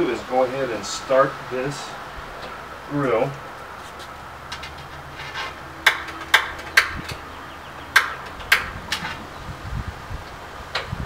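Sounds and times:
grill igniter clicking: 0:07.9 - 0:09.3.

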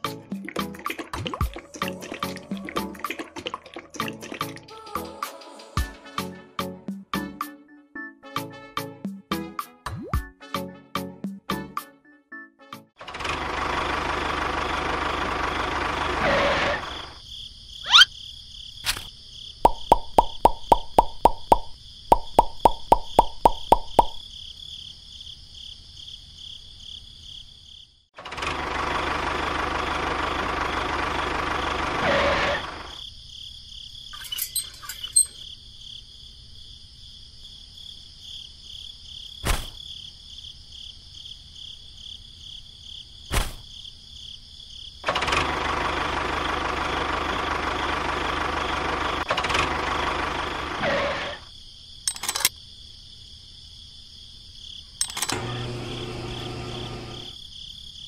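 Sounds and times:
small electric motor running: 0:55.1 - 0:57.4.

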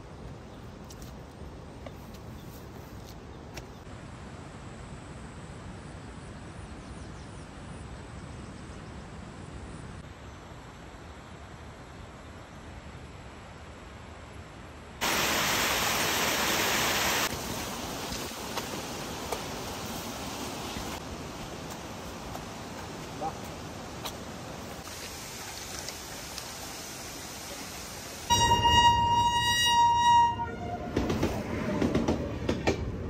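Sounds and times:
steady rushing hiss: 0:15.0 - 0:28.5.

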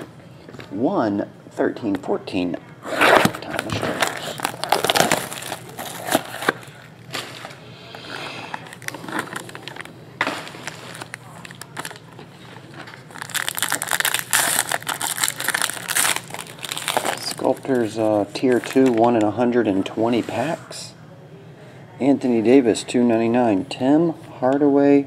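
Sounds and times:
foil pack tearing open: 0:03.0 - 0:06.7, 0:08.6 - 0:12.1, 0:12.9 - 0:17.9
plastic wrapping crinkling: 0:03.2 - 0:07.6, 0:08.5 - 0:19.3.

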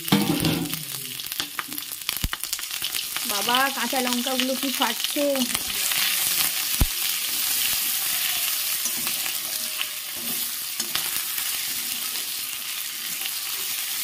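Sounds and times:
chillies popping in oil: 0:00.0 - 0:14.0
spices sizzling in hot oil: 0:00.0 - 0:14.0
metal spatula scraping pan: 0:07.3 - 0:13.7.

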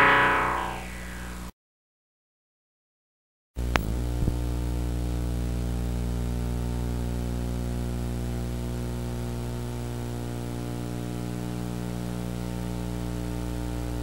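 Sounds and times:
electrical mains hum: 0:03.6 - 0:14.0.

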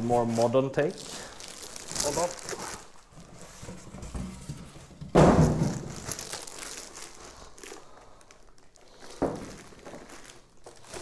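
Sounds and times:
plastic wrapping crinkling: 0:00.0 - 0:04.6, 0:05.2 - 0:11.0
loud thump: 0:05.0 - 0:05.9.

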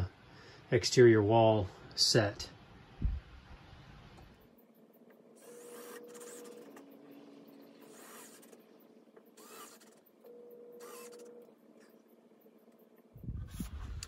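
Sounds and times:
cordless drill whining: 0:05.4 - 0:06.8, 0:09.4 - 0:11.5.

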